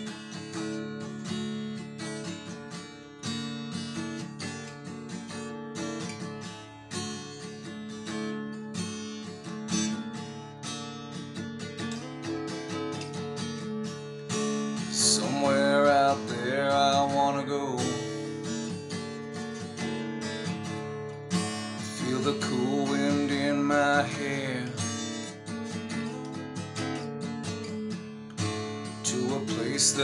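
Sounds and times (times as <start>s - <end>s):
acoustic guitar strumming: 0.0s - 30.0s
man singing: 14.9s - 18.4s, 21.8s - 24.9s, 29.0s - 30.0s.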